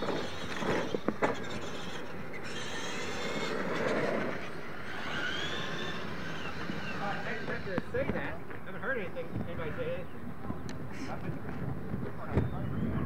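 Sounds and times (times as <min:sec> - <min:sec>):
tyre noise on dirt: 0:00.0 - 0:02.5
rc truck motor and gear whine: 0:00.0 - 0:08.4.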